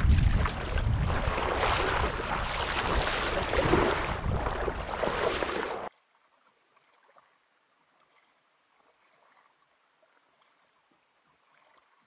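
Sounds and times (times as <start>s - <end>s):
wind buffeting microphone: 0.0s - 5.9s
water splashing and sloshing: 0.0s - 12.0s
faint water ticks: 5.9s - 12.0s.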